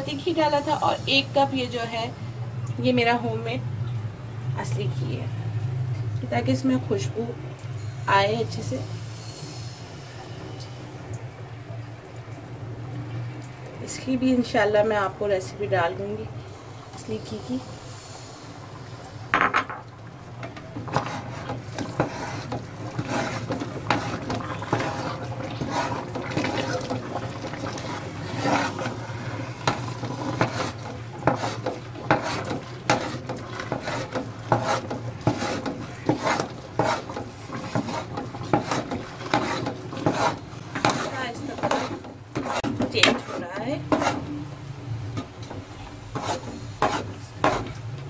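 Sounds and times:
metal spoon scraping a pot: 20.4 - 44.4, 46.1 - 47.8.

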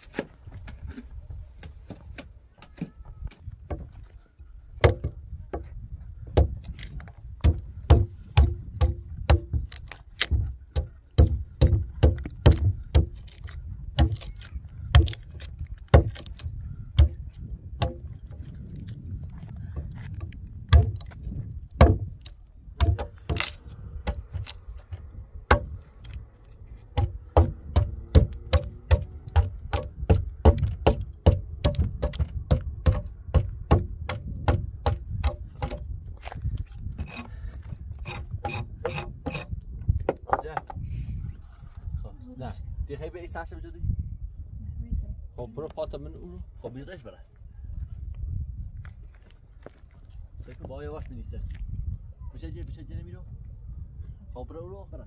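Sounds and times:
hatchet chopping wood: 4.8 - 5.7, 6.3 - 18.9, 19.8 - 26.2, 26.9 - 39.5.

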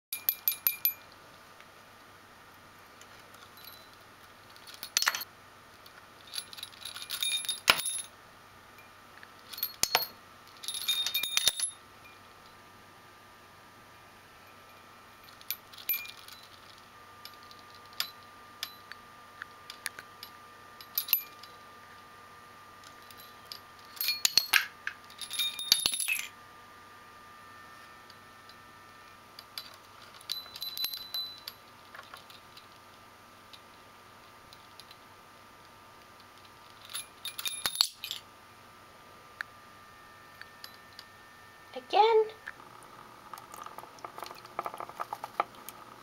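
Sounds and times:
small metal bells jingling: 3.4 - 5.3, 6.2 - 8.1, 9.5 - 12.2, 14.5 - 18.9, 22.8 - 26.4, 29.4 - 32.5, 36.8 - 38.2.

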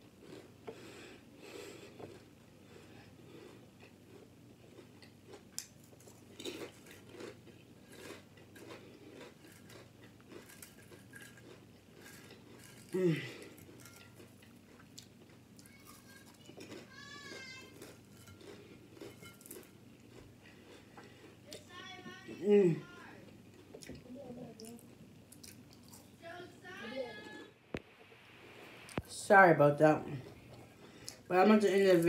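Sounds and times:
potato chips crunching: 4.0 - 21.7.

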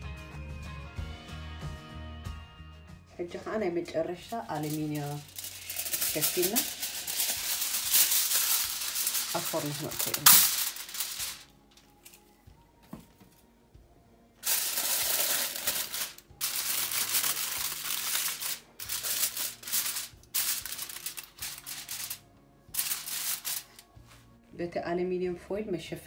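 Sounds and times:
aluminium foil crinkling: 3.8 - 12.3, 14.4 - 24.0.

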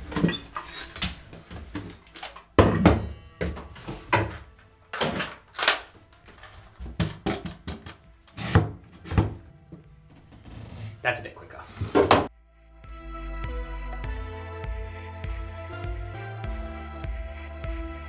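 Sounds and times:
knocks and thumps: 0.0 - 5.4, 6.8 - 10.5, 11.8 - 12.3.

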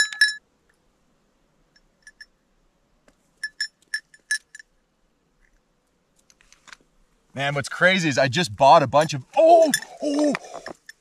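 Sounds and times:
light metallic clinks: 0.0 - 0.4, 1.8 - 2.4, 3.4 - 4.7, 9.6 - 11.0.

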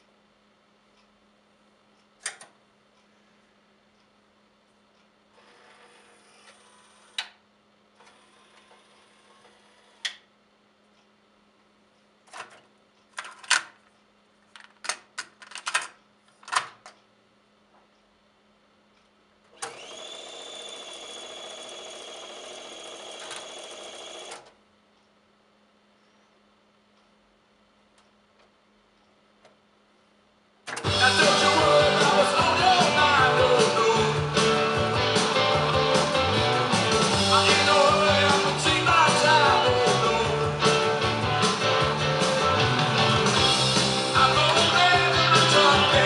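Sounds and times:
cassette motor whirring: 5.3 - 7.4, 8.0 - 10.2, 19.5 - 24.6
rock song with singing and guitar: 30.8 - 46.0.

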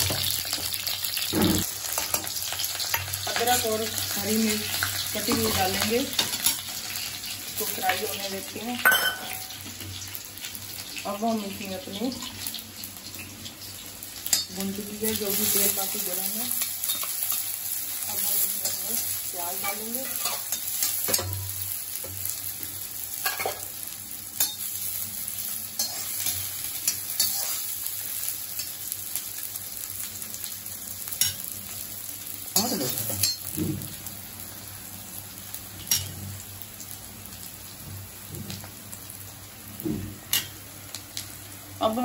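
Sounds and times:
onions sizzling in hot oil: 0.0 - 42.0
spatula scraping a pan: 25.8 - 27.7.

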